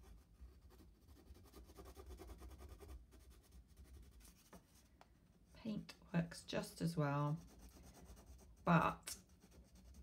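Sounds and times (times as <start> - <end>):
crayon scratching on cardboard: 0.0 - 4.8, 7.2 - 10.0.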